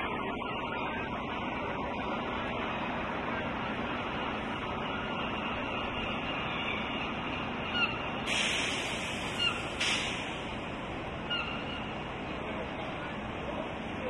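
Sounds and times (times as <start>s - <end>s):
idling buses and traffic hum: 0.0s - 14.0s
seagull call: 5.4s - 8.1s, 9.2s - 9.8s, 11.2s - 12.0s.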